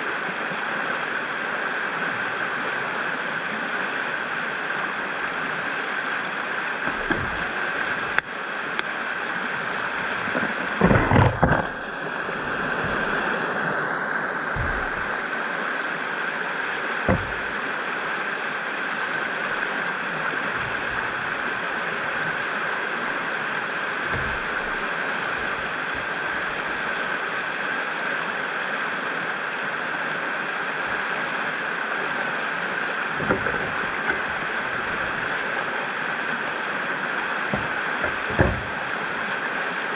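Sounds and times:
river rapids rushing: 0:00.0 - 0:39.9
short knocks and thumps: 0:06.8 - 0:08.2, 0:10.1 - 0:11.8, 0:14.5 - 0:15.2, 0:17.0 - 0:17.6, 0:20.5 - 0:21.4, 0:24.1 - 0:26.8, 0:33.2 - 0:35.5, 0:37.5 - 0:39.0.

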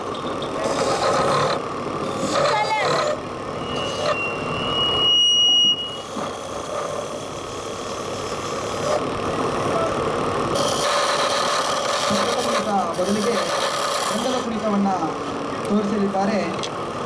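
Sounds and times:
chisel cutting spinning wood: 0:00.0 - 0:16.1
wood lathe running: 0:00.5 - 0:04.7, 0:05.9 - 0:16.4
high steady squeal: 0:00.6 - 0:09.0.

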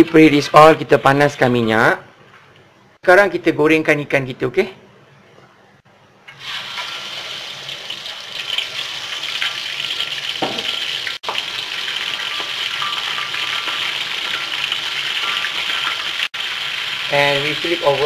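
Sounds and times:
fish sizzling in hot oil: 0:06.4 - 0:18.0.

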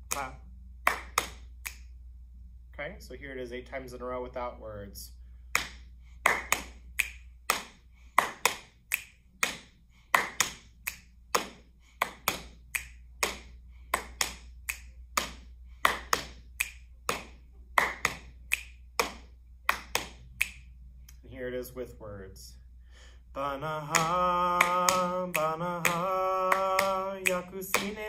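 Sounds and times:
hands clapping: 0:00.0 - 0:01.8, 0:05.5 - 0:20.7, 0:23.9 - 0:28.0
finger snapping: 0:00.9 - 0:02.0, 0:05.5 - 0:21.2, 0:23.9 - 0:28.0
hands patting thighs: 0:05.5 - 0:20.6.

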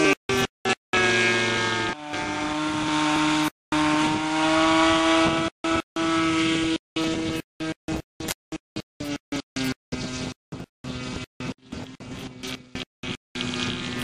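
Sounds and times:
model airplane engine running: 0:05.4 - 0:14.0.

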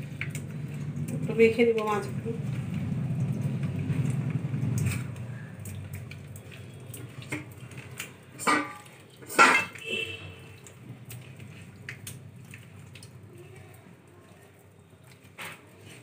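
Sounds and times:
soft wet squishing: 0:00.0 - 0:16.0
clinks on steel plate: 0:08.4 - 0:09.9.

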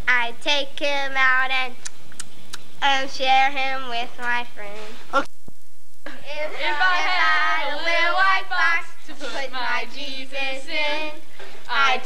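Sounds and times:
teenagers singing together: 0:06.3 - 0:12.0.

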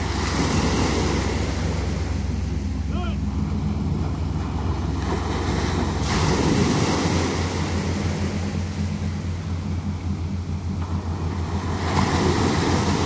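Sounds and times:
waves washing up a beach: 0:00.0 - 0:13.0.

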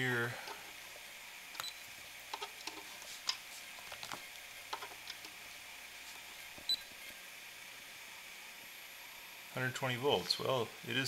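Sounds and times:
faint high whine: 0:00.0 - 0:02.2
test probes clicking and scraping: 0:01.5 - 0:05.4.

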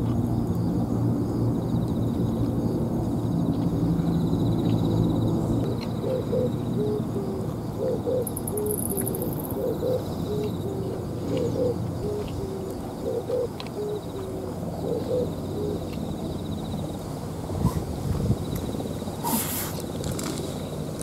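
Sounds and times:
dove cooing: 0:05.6 - 0:16.5.

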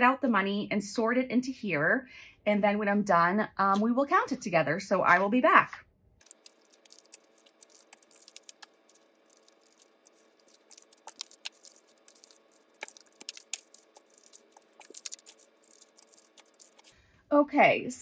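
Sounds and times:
paper cash rustling: 0:06.2 - 0:16.9.

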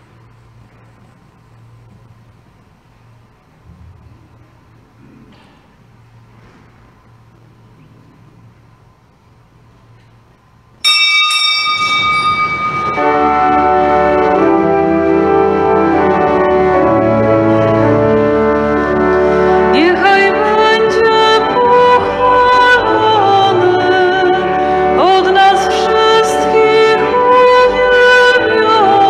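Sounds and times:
hand bell ringing: 0:10.8 - 0:13.6
pipe organ chords: 0:11.6 - 0:29.0
person singing: 0:12.9 - 0:29.0.

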